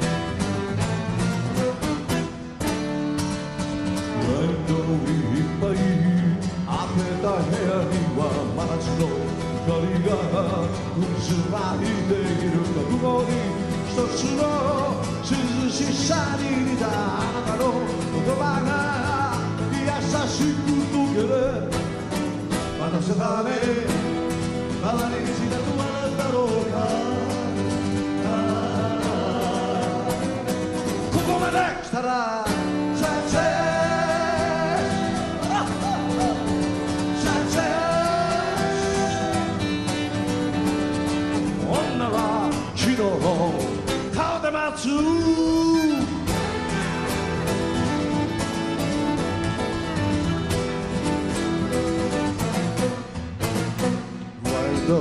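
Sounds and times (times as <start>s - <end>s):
live band with strummed guitars: 0.0s - 55.0s
man singing into microphone: 4.2s - 21.9s, 22.7s - 39.9s, 41.6s - 46.3s, 54.4s - 55.0s.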